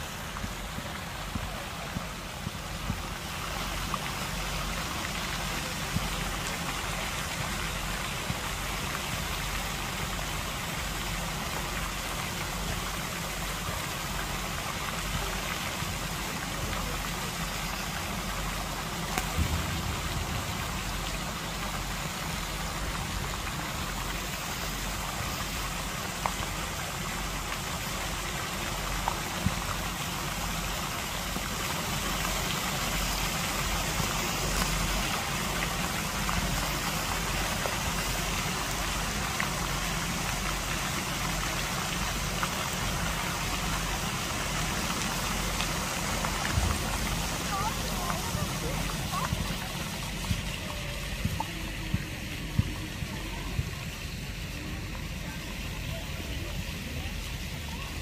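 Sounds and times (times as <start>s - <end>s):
fountain spray splashing on water: 0.0s - 58.0s
low rumble: 18.7s - 23.6s.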